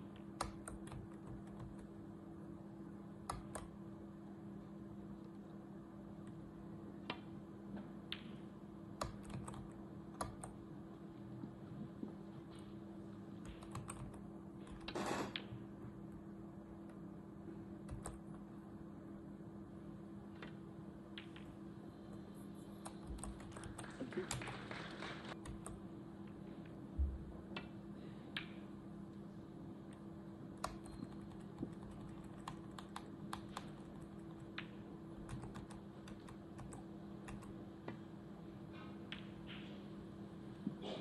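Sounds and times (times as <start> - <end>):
steady low hum: 0.0 - 41.0
keyboard typing: 0.4 - 1.9, 3.2 - 3.7, 9.0 - 10.6, 13.4 - 15.6, 17.8 - 18.4, 22.1 - 25.8, 30.6 - 37.6.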